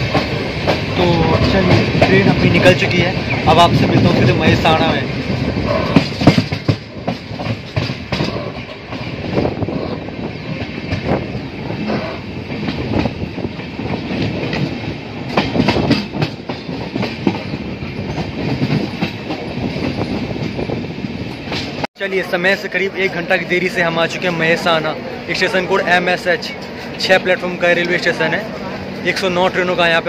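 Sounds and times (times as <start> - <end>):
train wheels clattering over joints: 0.0 - 22.5
rumble of train coaches: 0.0 - 30.0.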